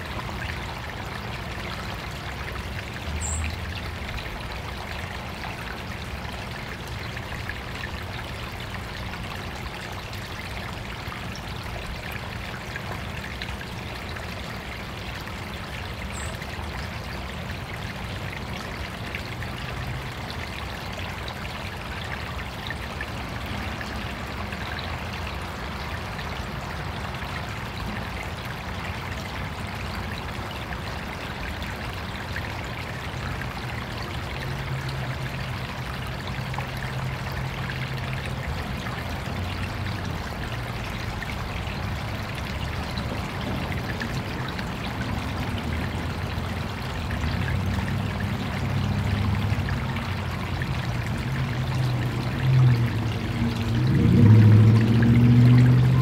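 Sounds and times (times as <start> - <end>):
stream water trickling: 0.0 - 56.0.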